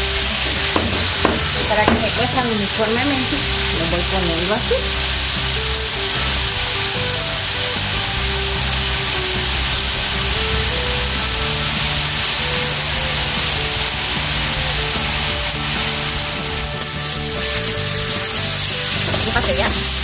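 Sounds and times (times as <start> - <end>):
background music: 0.0 - 20.0
steaks sizzling in a pan: 0.0 - 20.0.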